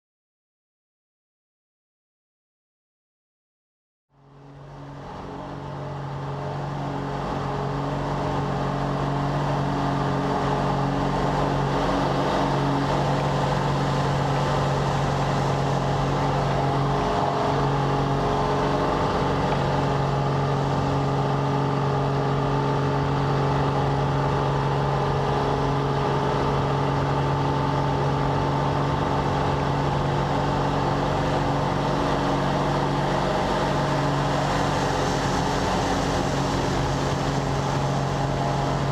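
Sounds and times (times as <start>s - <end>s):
aircraft engine and propeller droning: 4.3s - 38.9s.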